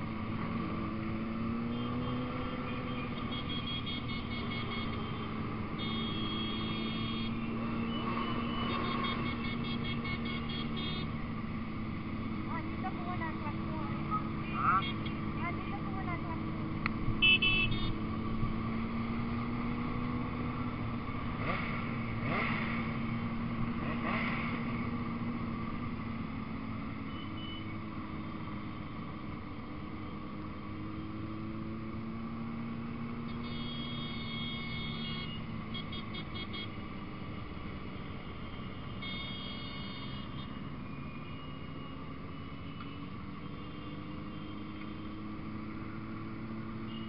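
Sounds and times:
motorcycle engines running: 0.0s - 47.0s.

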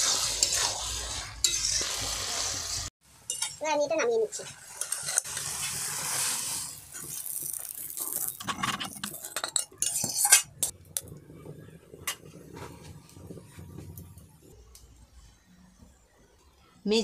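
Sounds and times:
metal spatula scraping a pan: 0.0s - 3.6s, 4.3s - 10.8s.

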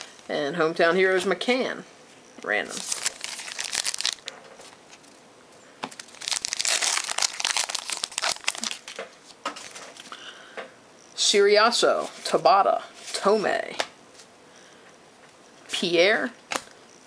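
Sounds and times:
foil wrapper crinkling: 2.7s - 4.8s, 5.9s - 9.0s.

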